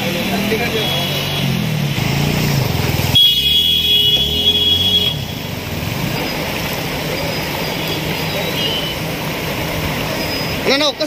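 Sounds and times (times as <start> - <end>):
car engine revving: 0.0 - 7.6
water sloshing: 3.9 - 10.7.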